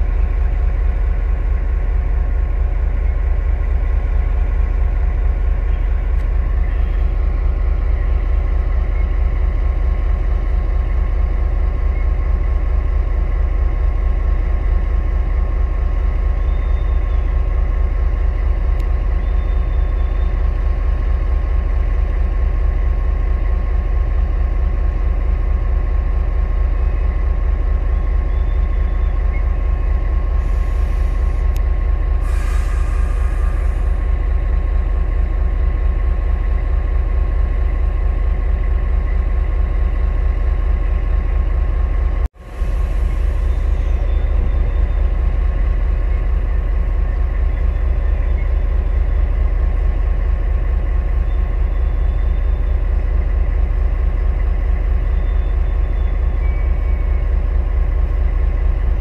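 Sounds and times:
diesel locomotive idling: 0.0s - 59.0s
air hisses: 32.2s - 33.8s.

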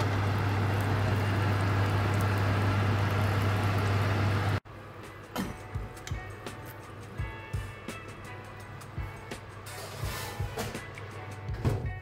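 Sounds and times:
oven humming: 0.0s - 6.0s.

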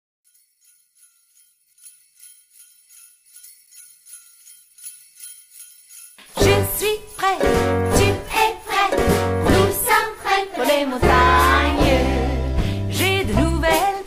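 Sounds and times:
sleigh bells shaken in rhythm: 0.3s - 14.0s
singing with instruments: 6.2s - 14.0s.

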